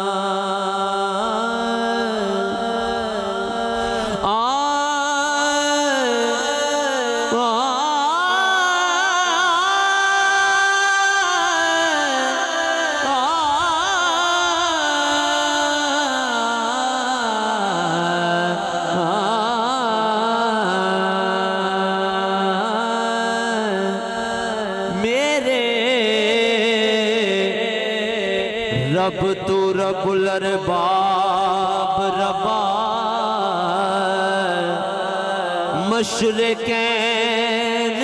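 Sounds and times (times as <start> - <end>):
man singing into a microphone: 0.0 - 38.0.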